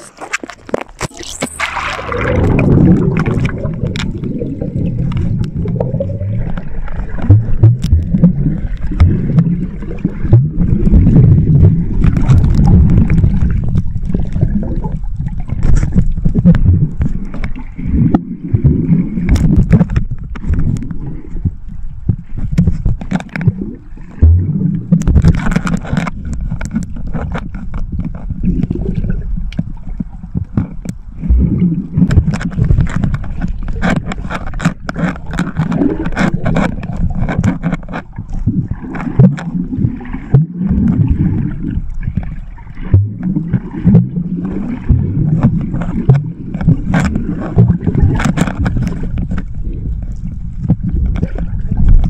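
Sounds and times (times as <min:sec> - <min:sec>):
water gurgling underwater: 0:00.0 - 0:52.0
sharp clicks and knocks: 0:06.5 - 0:08.3, 0:24.2 - 0:28.7, 0:32.1 - 0:38.1, 0:44.9 - 0:49.5.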